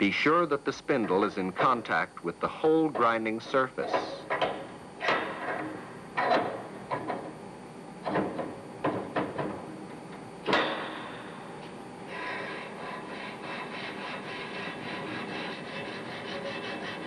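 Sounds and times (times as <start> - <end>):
metal valve grinding scrapes: 12.1 - 17.0.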